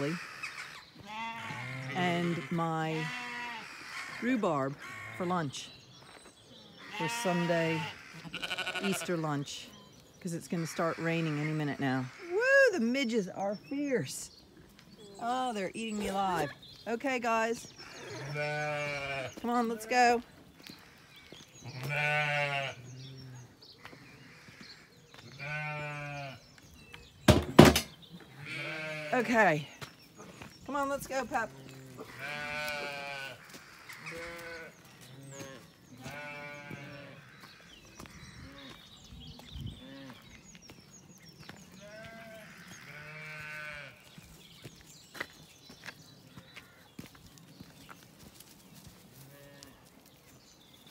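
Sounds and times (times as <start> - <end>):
sheep bleating: 0.0 - 4.2, 4.8 - 5.4, 6.8 - 9.3, 17.9 - 20.2, 21.3 - 22.9, 25.2 - 26.4, 28.3 - 29.6, 31.3 - 37.5, 41.8 - 44.1
birds chirping faintly: 0.0 - 50.9.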